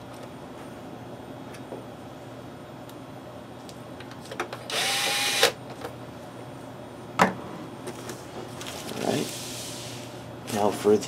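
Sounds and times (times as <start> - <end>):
cordless drill whining: 4.7 - 5.6.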